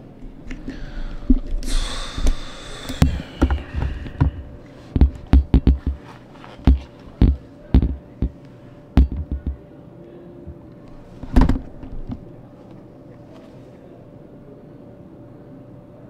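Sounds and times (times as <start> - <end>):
faint steady hum: 0.0 - 16.0
hands bumping recording device: 3.4 - 6.0, 6.6 - 8.4, 9.0 - 9.6.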